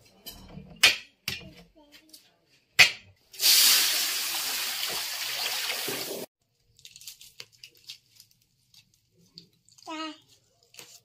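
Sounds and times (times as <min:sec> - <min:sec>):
water running from a tap: 0:03.4 - 0:06.3.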